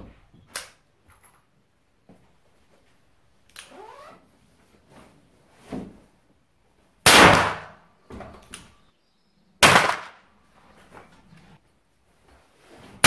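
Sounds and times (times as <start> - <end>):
revolver gunshot: 7.1 - 7.8, 9.6 - 10.2.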